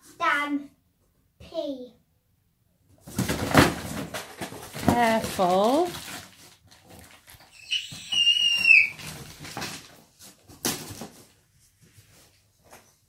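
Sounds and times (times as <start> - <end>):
toys rustling in cardboard box: 3.0 - 12.9
high-pitched squeal: 7.5 - 9.0.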